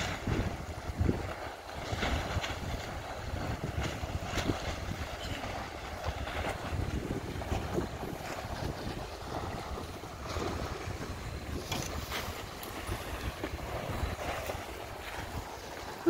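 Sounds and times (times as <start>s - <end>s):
gusty wind buffeting microphone: 0.0s - 16.0s
water lapping and splashing: 0.0s - 16.0s.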